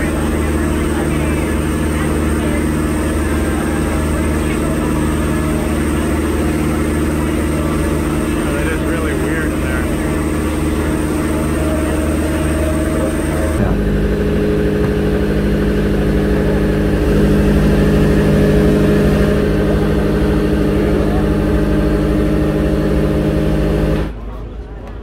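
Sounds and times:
boat engine droning: 0.0s - 24.6s.

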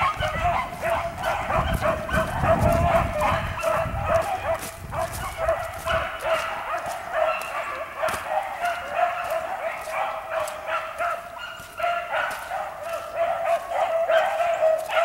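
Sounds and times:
hounds baying: 0.0s - 15.0s.

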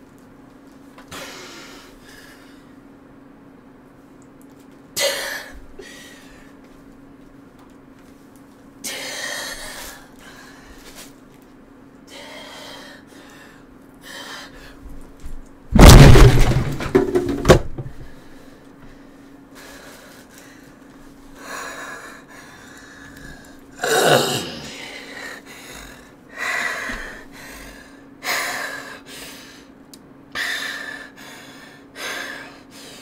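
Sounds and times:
faint steady hum: 0.0s - 33.0s
thumps and knocks: 15.8s - 18.1s
person gasping: 21.5s - 26.1s.

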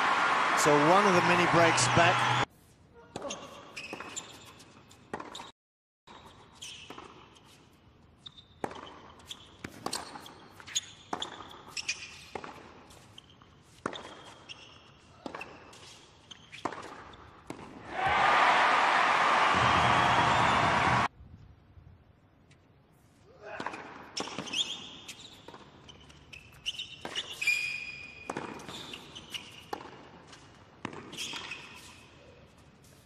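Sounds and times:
crowd applause: 0.0s - 2.5s, 17.9s - 21.1s
shoe squeaks: 3.2s - 5.5s, 6.1s - 12.3s, 12.9s - 17.4s, 24.2s - 30.4s, 31.0s - 33.0s
racket hitting tennis ball: 28.3s - 31.9s
ball bouncing: 30.8s - 31.5s.

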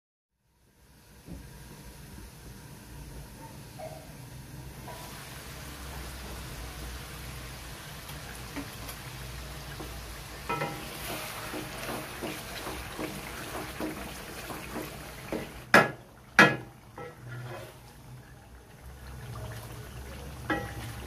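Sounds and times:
chicken sizzling in gravy: 3.6s - 21.0s
wooden spatula scraping pan: 9.7s - 15.6s, 16.6s - 18.0s.

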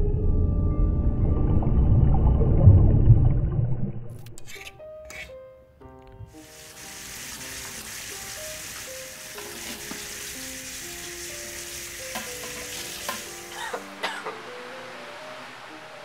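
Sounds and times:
soft music of held notes: 4.7s - 16.0s
steady hiss: 6.4s - 16.0s.

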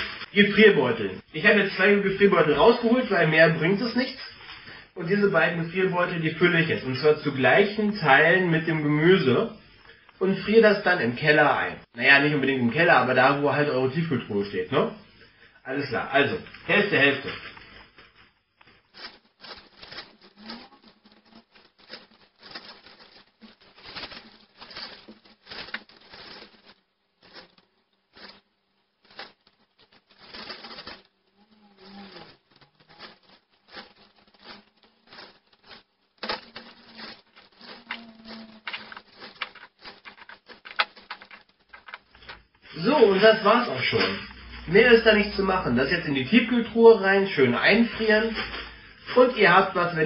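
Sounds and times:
plastic bags crinkling: 16.2s - 49.9s.

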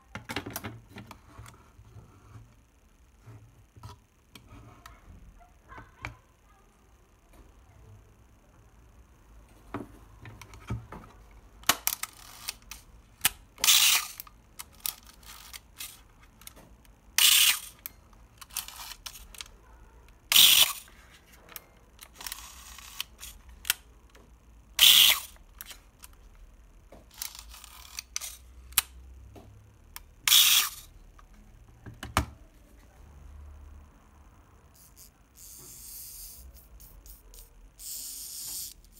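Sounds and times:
camera mechanism clicks and ticks: 11.6s - 16.6s, 17.2s - 19.5s, 20.3s - 20.9s, 24.8s - 26.2s, 27.1s - 29.0s, 29.9s - 30.8s.

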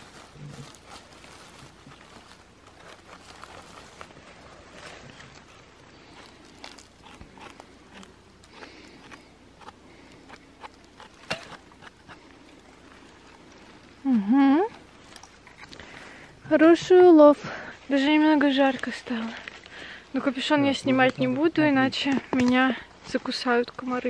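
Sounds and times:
rustling in dry leaves: 0.0s - 10.2s.

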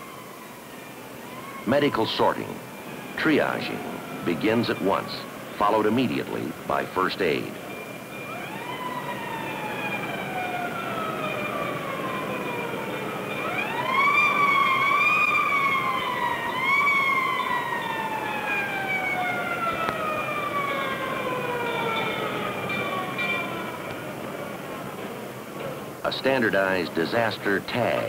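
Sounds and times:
emergency vehicle siren: 0.0s - 28.0s.

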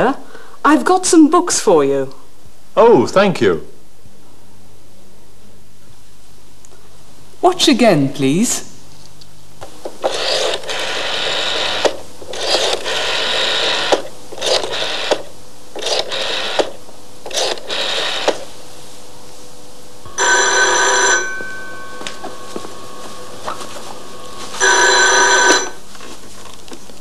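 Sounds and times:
telephone bell ringing: 20.1s - 25.8s.

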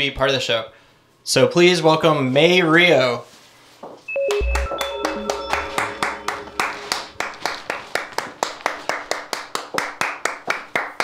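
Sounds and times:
hands clapping rhythmically: 4.2s - 11.0s.

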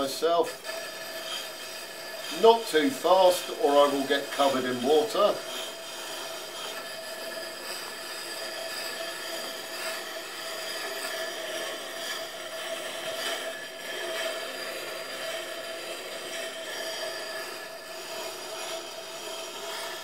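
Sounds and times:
axe grinding on grindstone: 0.0s - 20.0s.

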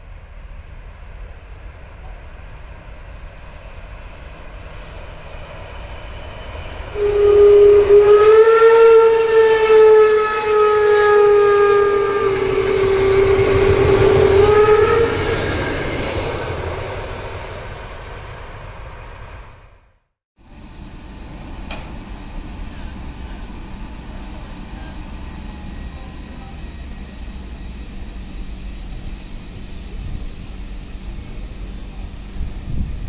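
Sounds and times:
train rumble and clatter: 0.0s - 33.0s
steam locomotive whistle: 6.0s - 16.5s, 21.7s - 32.9s.

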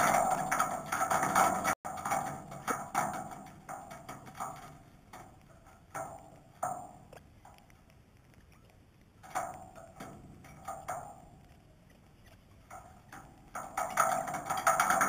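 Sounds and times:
birds tapping on metal table: 0.0s - 7.7s, 9.2s - 15.0s.

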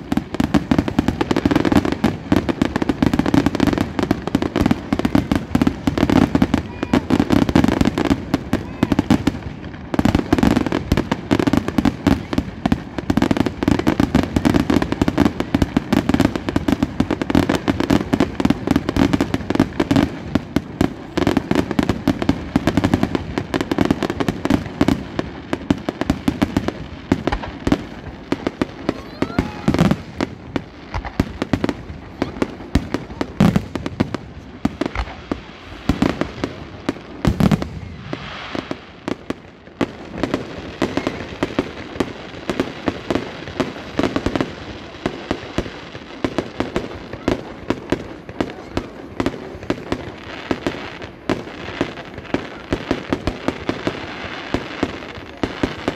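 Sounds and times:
fireworks bangs and crackling: 0.0s - 55.9s.

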